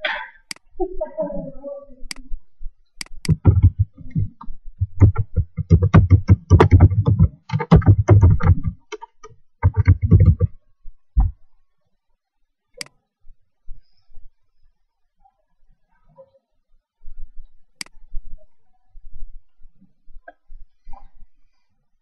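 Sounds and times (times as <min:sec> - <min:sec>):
fast typing on laptop keyboard: 0:03.3 - 0:10.5.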